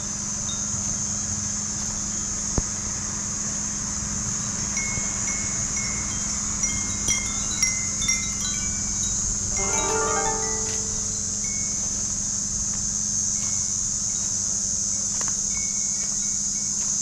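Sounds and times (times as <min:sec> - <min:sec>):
chime-like notes: 0:09.6 - 0:11.4
steady high hiss: 0:09.6 - 0:11.7.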